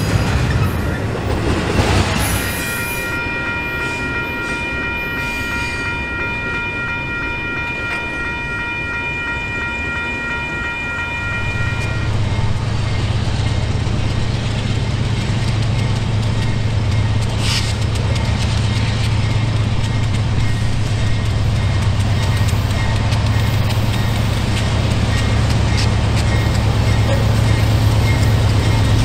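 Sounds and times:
diesel engine drone: 11.4 - 29.0.

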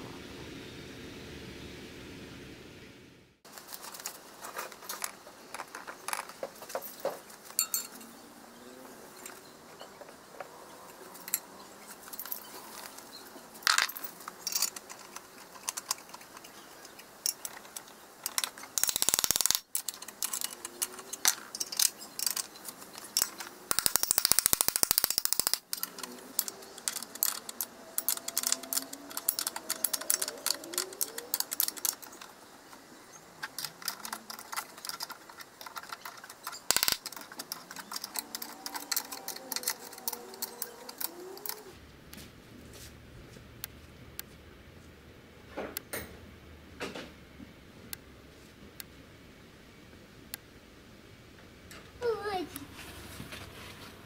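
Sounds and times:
metal bolts and spanners clinking: 3.8 - 8.2, 9.1 - 41.8.

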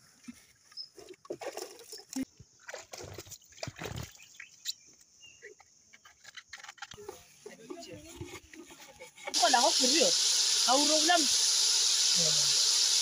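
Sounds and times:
water splashing in a basin: 1.0 - 4.4.

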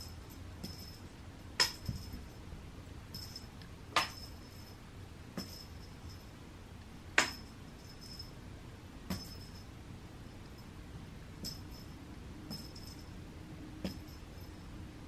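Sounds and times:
sharp light clinks with ringing: 3.1 - 4.8, 7.2 - 8.4, 9.1 - 9.7, 11.4 - 13.2.

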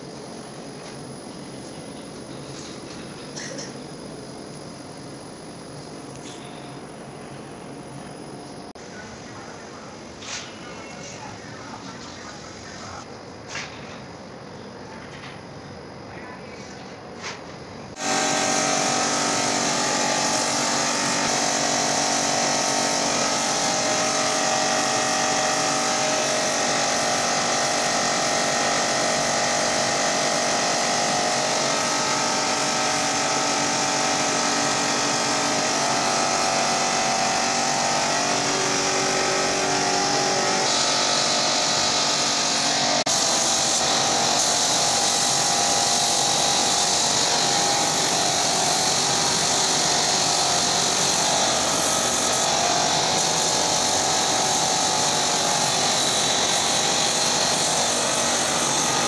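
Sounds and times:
air compressor humming: 0.0 - 14.2, 17.1 - 59.0
spray gun hissing: 17.9 - 59.0.

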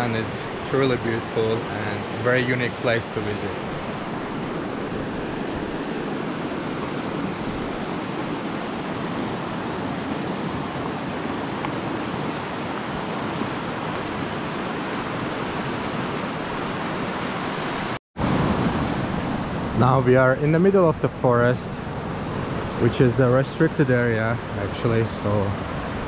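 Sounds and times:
whitewater river rushing: 0.0 - 20.1.

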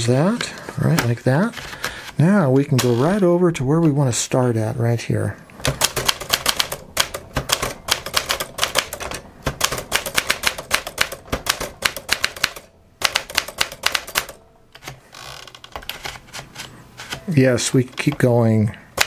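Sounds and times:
typewriter keys striking: 5.6 - 15.0.

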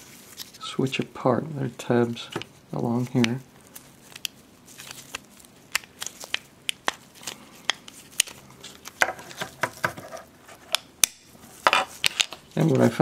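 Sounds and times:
plastic rattling and handling: 6.1 - 10.3.

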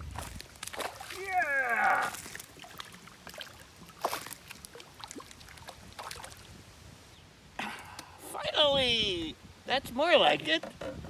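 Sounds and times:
light water sloshing: 0.0 - 6.7
fish splashing at water surface: 0.1 - 6.4.

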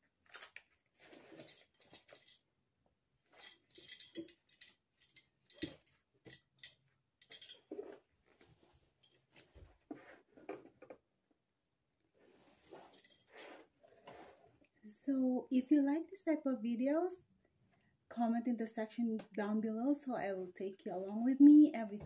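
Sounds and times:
metal hardware clinking: 1.3 - 2.4, 3.3 - 8.0.

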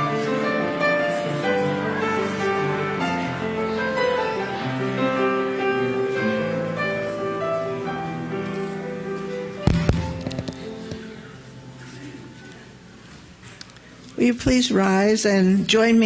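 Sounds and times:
slow keyboard music: 0.0 - 13.4
sharp knock: 9.7 - 11.0.

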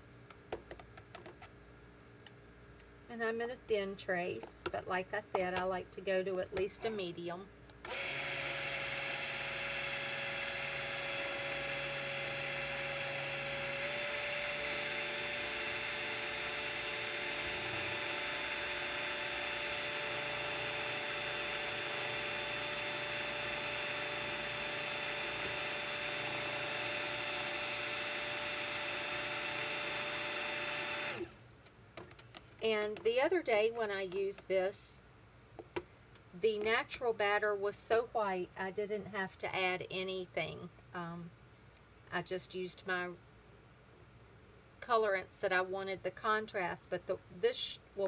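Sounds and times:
stick blender motor whine: 7.8 - 31.4.

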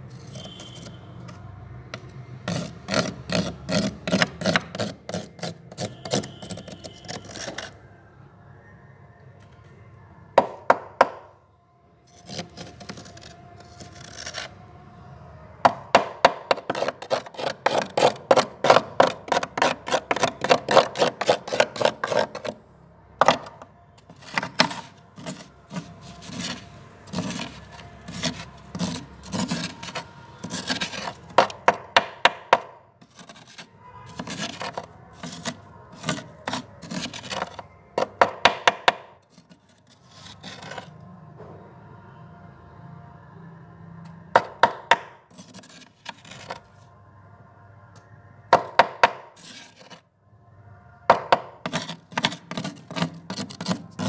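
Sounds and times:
spoon scraping frost in freezer: 0.0 - 7.8, 12.1 - 14.6, 16.4 - 22.6, 23.2 - 31.9, 33.0 - 41.0, 45.3 - 46.8, 49.2 - 50.0, 51.6 - 54.0.

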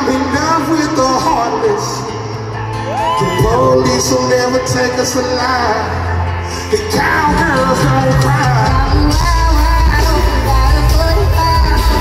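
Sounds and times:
live band music: 0.0 - 12.0.

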